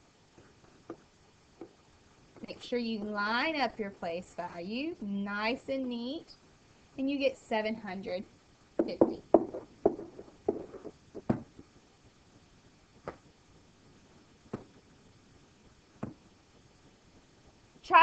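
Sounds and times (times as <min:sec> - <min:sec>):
pen tapping on whiteboard: 0:08.8 - 0:11.6.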